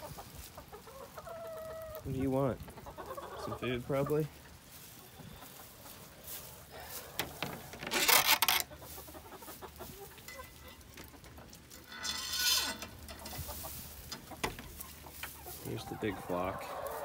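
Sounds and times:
small knocks and rustles: 4.7 - 15.8.

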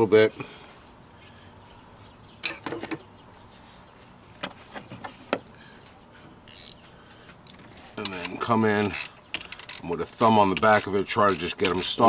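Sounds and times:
metal parts clicking: 9.0 - 12.0.

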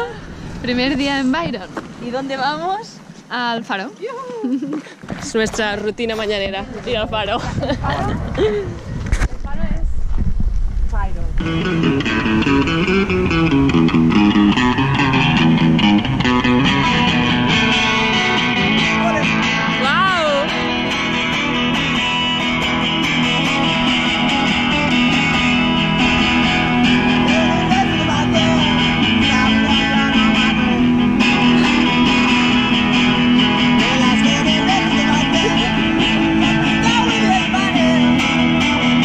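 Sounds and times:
electric guitar playing: 11.3 - 39.0.

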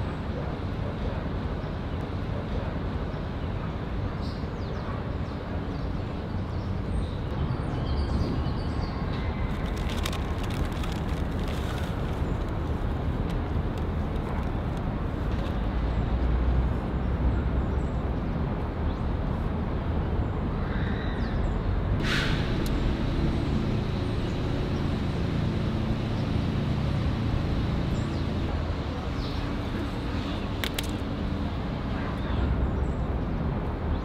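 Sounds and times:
traffic rumble: 0.0 - 34.0
low engine hum: 21.4 - 34.0
short sharp hiss: 22.0 - 22.6.

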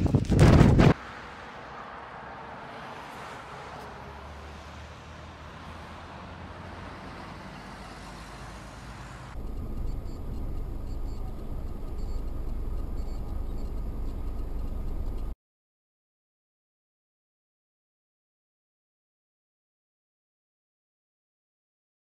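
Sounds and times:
car road and engine noise: 0.0 - 15.4
deep engine rumble: 9.3 - 15.4.

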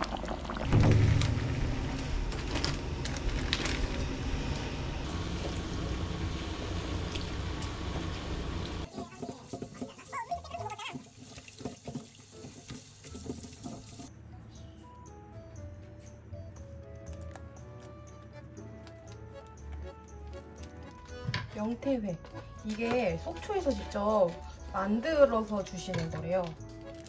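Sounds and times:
water boiling in pan: 0.0 - 4.0, 5.0 - 14.1.

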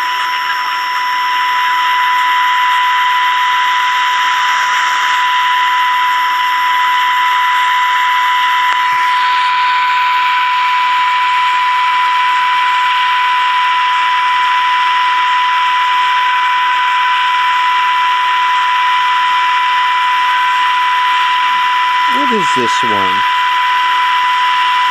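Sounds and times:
loud radio hiss: 0.0 - 5.6, 22.0 - 23.3
radio test tone: 0.0 - 13.7, 21.9 - 23.4.

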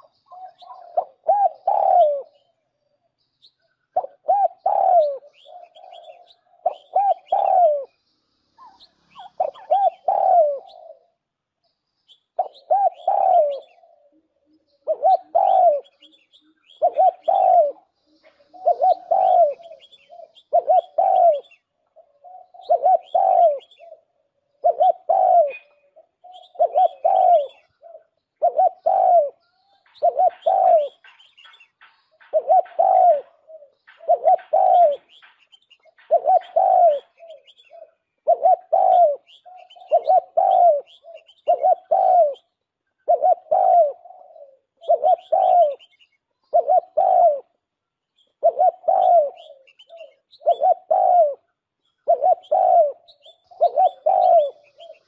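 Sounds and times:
dove cooing: 0.0 - 3.0, 3.8 - 8.0, 8.6 - 11.3, 12.3 - 55.0.

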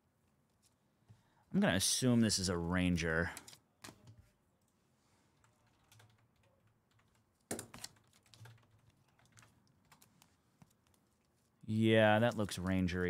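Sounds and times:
faint keyboard keystrokes: 5.4 - 11.3.

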